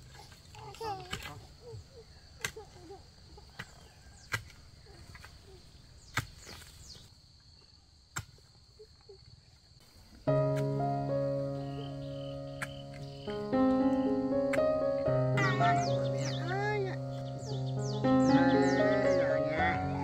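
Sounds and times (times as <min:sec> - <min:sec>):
high insect drone: 0:09.3 - 0:20.0
music: 0:10.3 - 0:20.0.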